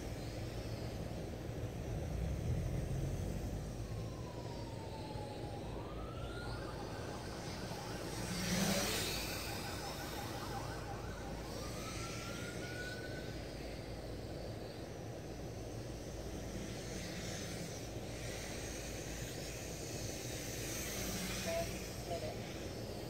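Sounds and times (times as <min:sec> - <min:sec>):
drone motors whining: 0:00.0 - 0:23.0
steady hiss: 0:11.6 - 0:23.0.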